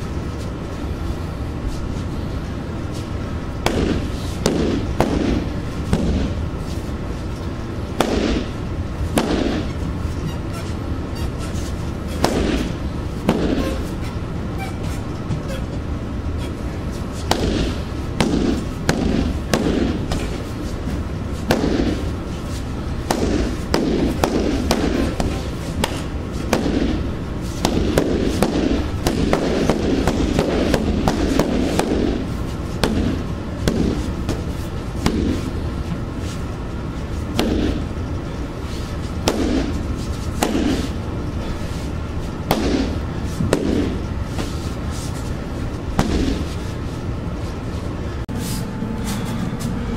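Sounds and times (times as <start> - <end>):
strikes on heavy bag: 3.6 - 6.4, 8.0 - 8.5, 9.1 - 9.7, 12.2 - 13.8, 17.3 - 20.4, 21.4 - 22.0, 23.0 - 27.0, 37.3 - 37.8, 39.2 - 39.8, 40.4 - 40.9, 42.4 - 44.0, 45.9 - 46.5.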